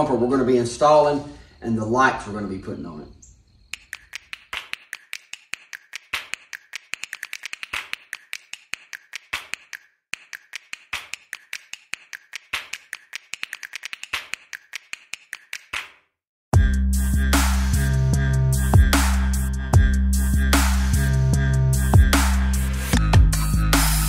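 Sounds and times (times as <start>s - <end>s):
rapid clicking and tapping: 3.7s - 15.9s.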